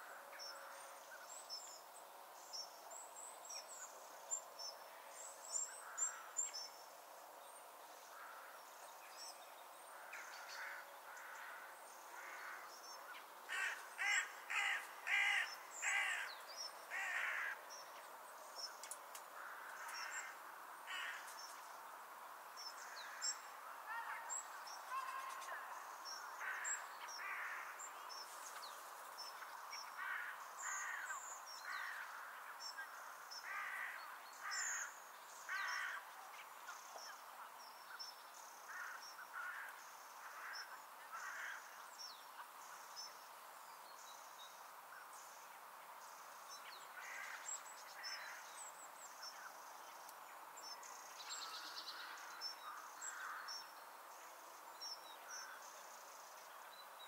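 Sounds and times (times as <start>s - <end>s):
faint background hiss: 0.0s - 57.0s
crows cawing: 10.0s - 12.7s, 13.5s - 16.3s, 16.9s - 17.6s, 19.4s - 21.3s, 26.4s - 27.8s, 30.0s - 32.4s, 33.4s - 34.9s, 38.7s - 41.7s, 47.0s - 47.5s, 52.0s - 53.5s.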